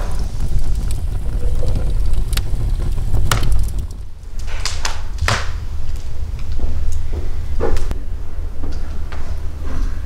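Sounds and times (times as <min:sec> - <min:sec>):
wood fire crackling and popping: 0:00.0 - 0:08.0
low rumble: 0:00.0 - 0:10.0.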